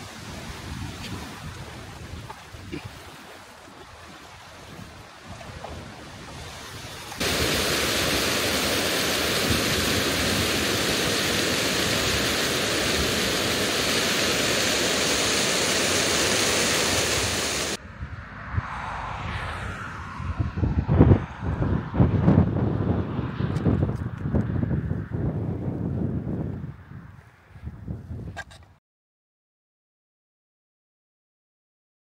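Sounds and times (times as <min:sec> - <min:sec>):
quiet stream: 0:00.0 - 0:20.2
gusty wind on microphone: 0:00.0 - 0:28.8
waterfall rushing over rocks: 0:07.1 - 0:17.8.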